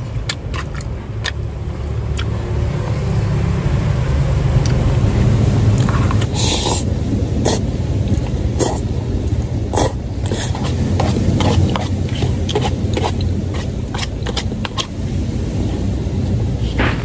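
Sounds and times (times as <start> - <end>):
steady low hum: 0.0 - 17.0
wet chewing with mouth clicks: 0.1 - 1.5, 2.1 - 2.4, 5.8 - 15.0
slurping noodles: 5.8 - 14.9.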